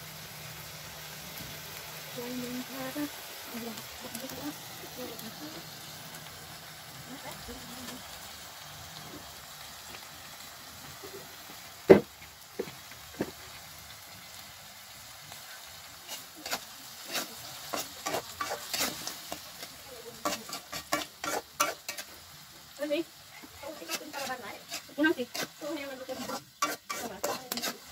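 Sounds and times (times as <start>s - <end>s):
insects sizzling in a wok: 0.0s - 27.9s
metal spatula scraping a wok: 15.3s - 22.4s, 23.4s - 27.9s.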